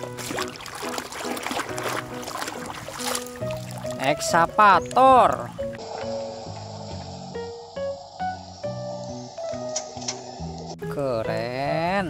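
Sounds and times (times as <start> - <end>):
simple background melody: 0.0 - 12.0.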